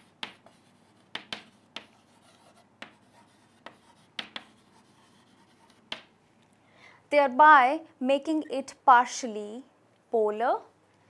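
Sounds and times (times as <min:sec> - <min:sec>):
chalk tapping and scratching: 0:00.0 - 0:06.1.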